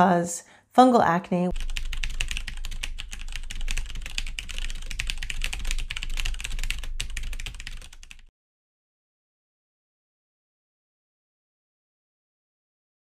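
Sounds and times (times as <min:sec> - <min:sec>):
keyboard typing: 0:01.5 - 0:08.3.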